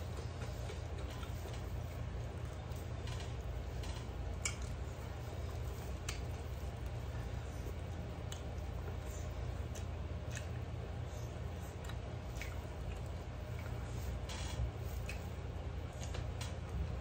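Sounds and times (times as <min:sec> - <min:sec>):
fingers squishing rice on plate: 0:00.0 - 0:16.7.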